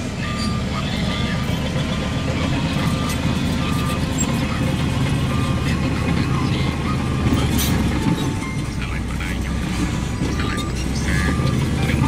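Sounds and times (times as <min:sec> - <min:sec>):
diesel engine rumbling: 0:00.0 - 0:12.0
reversing alarm beeping: 0:00.2 - 0:12.0.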